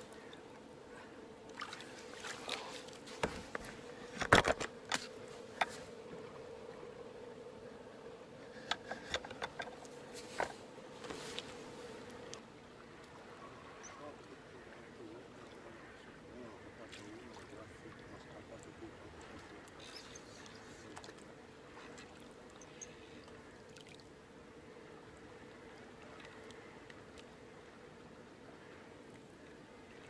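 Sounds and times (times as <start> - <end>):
faint steady hum: 0.0 - 30.0
fishing tackle clicks and knocks: 3.2 - 5.7, 8.6 - 10.5.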